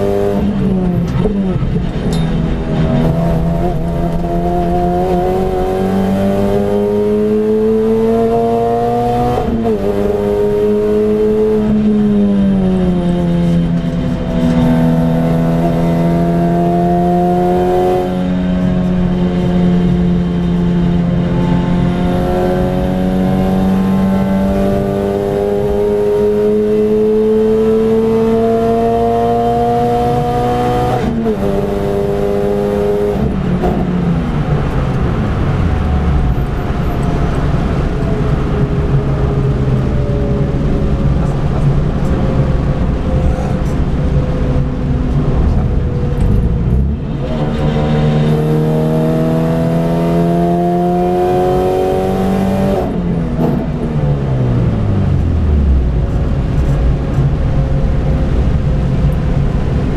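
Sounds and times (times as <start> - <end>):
car engine pulling hard: 0.0 - 59.9.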